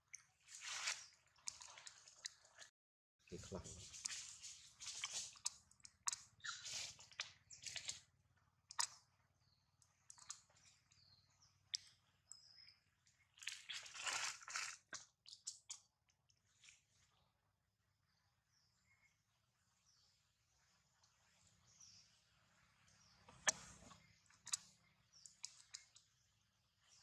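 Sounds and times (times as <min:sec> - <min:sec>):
infant monkey suckling: 0:03.6 - 0:08.0.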